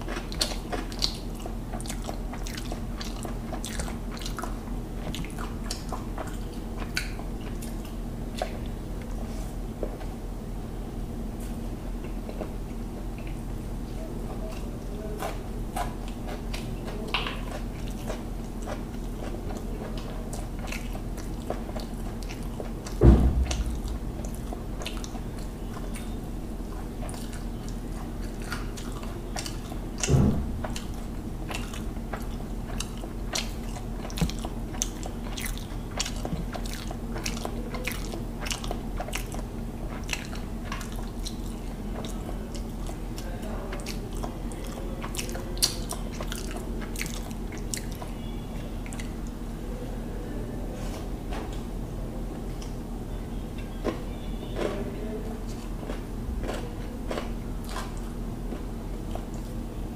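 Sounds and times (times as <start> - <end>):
chewing and wet mouth clicks: 0.0 - 9.2, 14.4 - 48.2, 48.8 - 49.4, 52.4 - 52.8, 55.5 - 59.6
steady low hum: 0.0 - 59.9
heavy thumps: 23.0 - 24.7.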